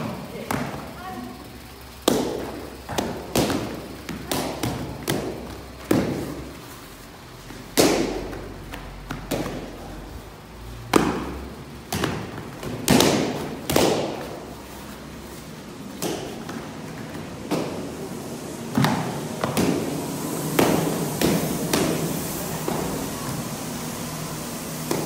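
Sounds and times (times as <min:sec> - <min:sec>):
kicks slapping kick paddles: 0:02.0 - 0:06.4, 0:07.5 - 0:09.8, 0:10.8 - 0:14.4, 0:15.9 - 0:17.9.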